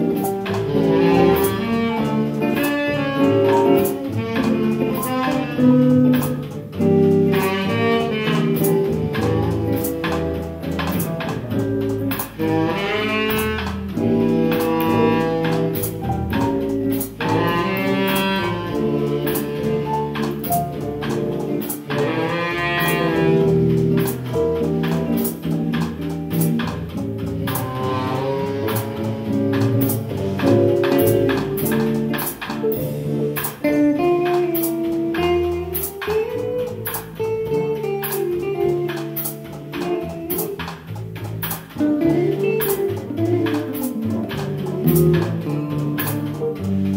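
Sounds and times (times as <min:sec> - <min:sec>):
tenor saxophone: 0:00.0 - 0:11.4, 0:12.1 - 0:25.8, 0:27.4 - 0:46.9
drums with cymbal strokes: 0:00.0 - 0:46.9
electric guitar: 0:00.0 - 0:46.9
piano: 0:00.0 - 0:46.9
walking double bass: 0:00.0 - 0:46.9.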